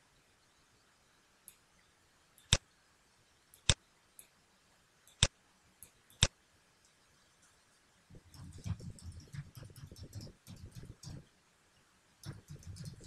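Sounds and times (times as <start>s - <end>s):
computer mouse clicks: 2.4s - 2.6s, 3.5s - 4.3s, 5.0s - 7.6s, 8.2s - 11.3s, 12.2s - 13.0s
keyboard typing: 8.2s - 11.3s, 12.2s - 13.0s.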